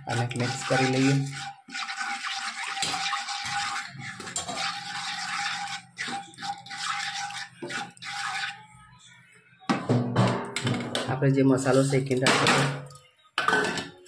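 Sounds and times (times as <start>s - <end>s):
spoon stirring in pan: 0.0s - 8.7s.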